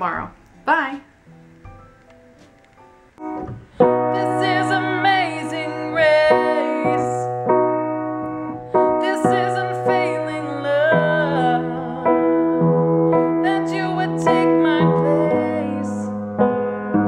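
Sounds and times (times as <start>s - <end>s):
piano chords ringing: 0.0s - 17.0s
woman singing with vibrato: 3.8s - 7.6s, 8.7s - 16.2s.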